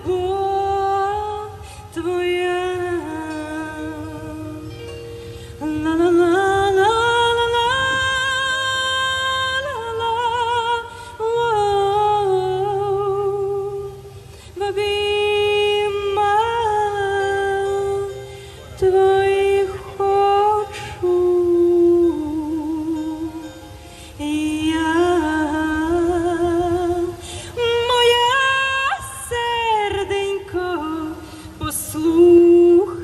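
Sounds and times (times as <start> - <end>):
woman singing wordless melody: 0.0 - 33.0
singer breathing: 1.6 - 1.9, 5.1 - 5.6, 14.2 - 14.6, 23.8 - 24.2, 27.2 - 27.6, 31.2 - 31.6.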